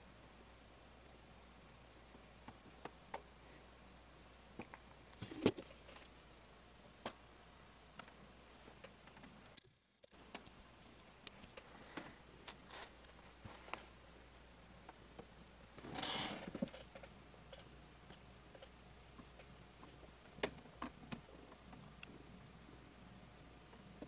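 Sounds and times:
faint clicks and taps: 0:07.9 - 0:15.4.

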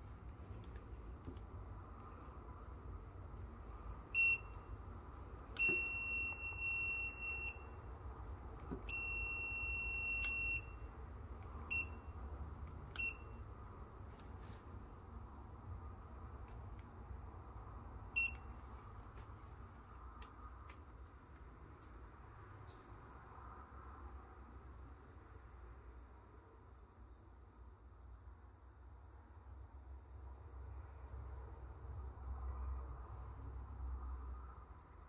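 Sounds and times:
multimeter beeps: 0:04.1 - 0:04.8, 0:05.5 - 0:07.9, 0:08.6 - 0:11.0, 0:11.6 - 0:12.3, 0:12.9 - 0:13.5, 0:18.1 - 0:18.6.

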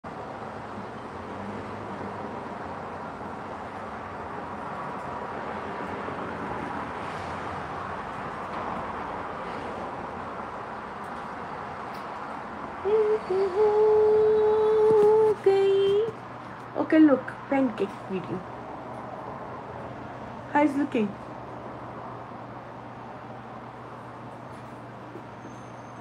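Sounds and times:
outdoor background noise: 0:00.0 - 0:26.0.

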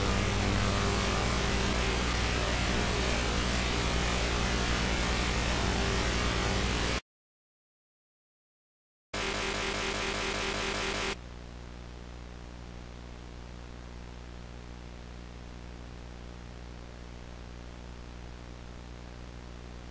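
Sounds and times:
low mains hum: 0:00.0 - 0:06.9, 0:11.2 - 0:19.9
loud buzzy noise: 0:00.0 - 0:07.0, 0:09.2 - 0:11.2.

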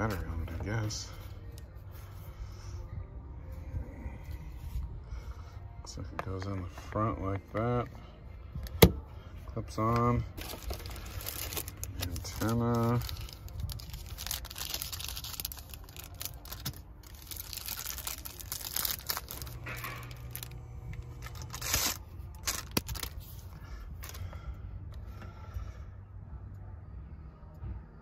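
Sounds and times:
plastic bag crinkling and tearing: 0:10.4 - 0:23.3.

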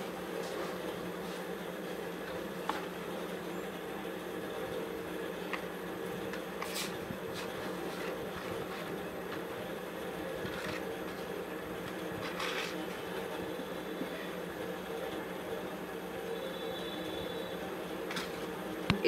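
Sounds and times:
low room hum: 0:00.0 - 0:19.0
paper taps and rustles: 0:10.4 - 0:12.8.

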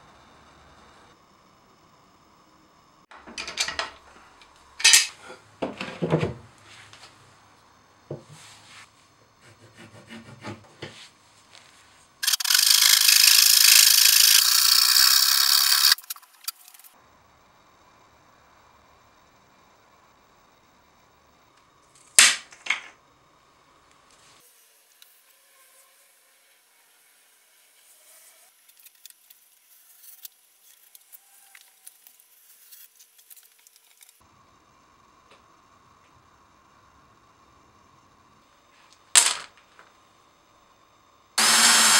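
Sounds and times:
saw cutting chipboard: 0:09.4 - 0:10.6, 0:12.2 - 0:16.6, 0:41.4 - 0:41.9.

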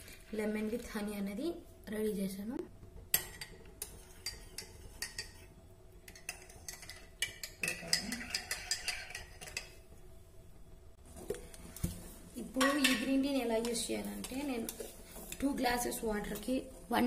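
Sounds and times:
metal spoon clinking on vessels: 0:03.1 - 0:09.8, 0:12.6 - 0:13.2.

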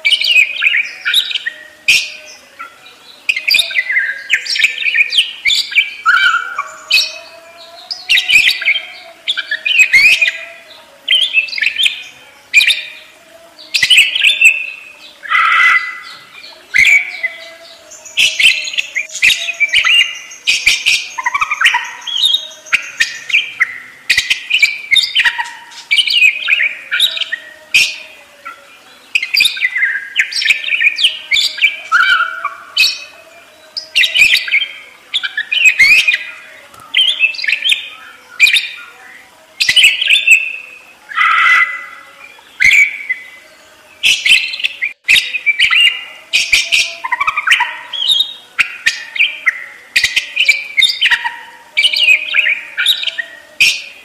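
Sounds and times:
budgerigars chattering and warbling: 0:00.0 - 0:39.0, 0:39.6 - 0:54.0.

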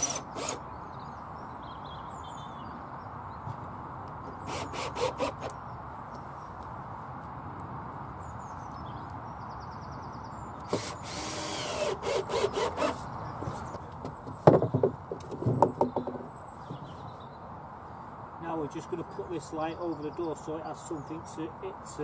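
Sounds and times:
cordless drill whining: 0:00.0 - 0:00.6, 0:04.5 - 0:05.5, 0:10.7 - 0:13.0.

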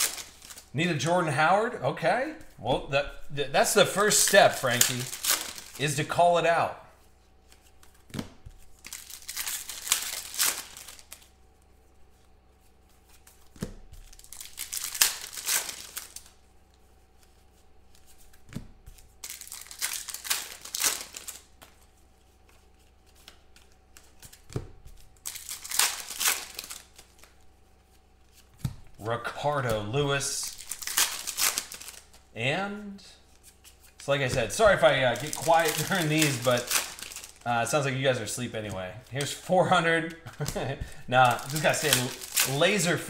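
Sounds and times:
foil packs crinkling: 0:00.0 - 0:00.7, 0:03.6 - 0:06.1, 0:08.5 - 0:11.4, 0:13.9 - 0:16.4, 0:19.0 - 0:21.8, 0:22.7 - 0:27.4, 0:29.6 - 0:32.2, 0:33.4 - 0:43.0.

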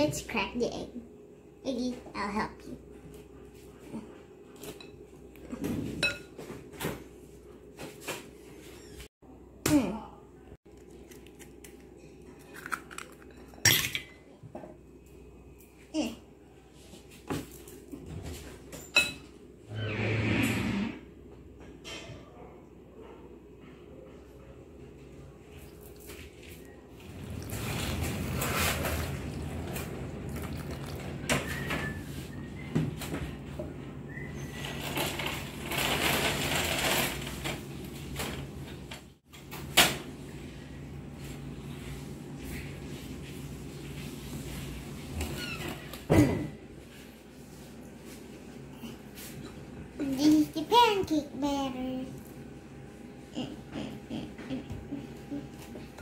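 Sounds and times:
low steady hum: 0:21.3 - 0:34.3.

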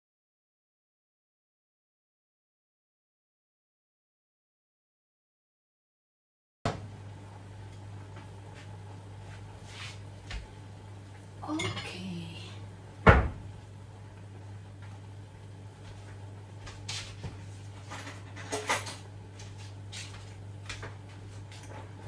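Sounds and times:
steady low hum: 0:06.7 - 0:22.0
dishes and utensils clinking: 0:11.5 - 0:12.0, 0:17.9 - 0:19.0.

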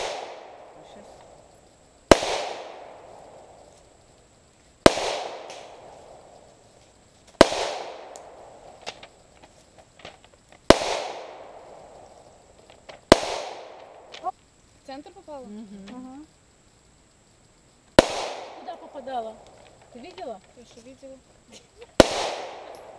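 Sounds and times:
pistol shots with echo: 0:00.0 - 0:00.9, 0:02.1 - 0:03.2, 0:04.8 - 0:05.9, 0:07.4 - 0:08.5, 0:10.7 - 0:11.8, 0:13.1 - 0:14.0, 0:18.0 - 0:18.9, 0:22.0 - 0:22.9.

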